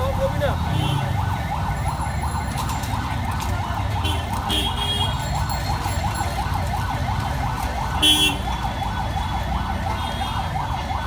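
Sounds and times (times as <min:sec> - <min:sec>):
low street rumble: 0:00.0 - 0:11.0
siren-like wail: 0:00.0 - 0:11.0.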